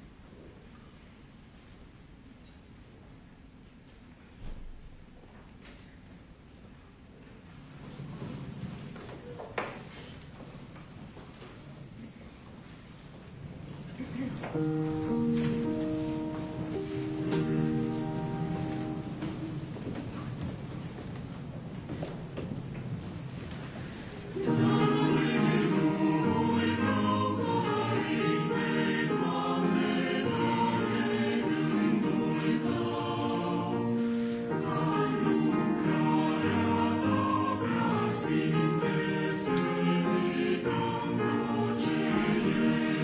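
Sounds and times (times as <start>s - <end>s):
mixed choir singing: 14.5s - 19.6s, 24.3s - 43.0s.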